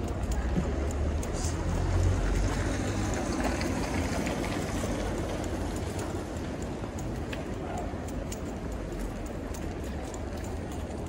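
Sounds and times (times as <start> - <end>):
faint footsteps: 0.0 - 11.0
low rumble of traffic: 0.0 - 11.0.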